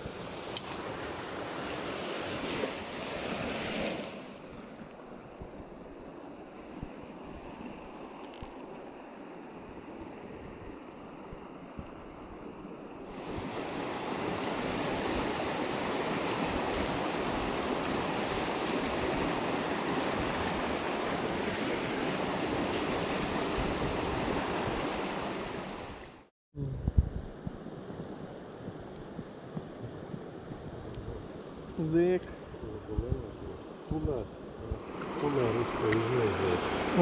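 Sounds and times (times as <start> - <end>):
river rapids rushing: 34.8 - 37.0.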